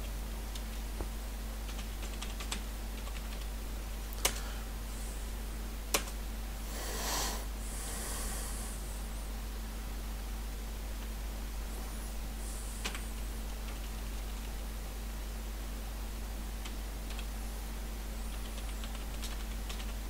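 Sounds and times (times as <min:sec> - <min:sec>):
low electrical hum: 0:00.0 - 0:20.0
keyboard typing: 0:01.7 - 0:03.5, 0:18.3 - 0:20.0.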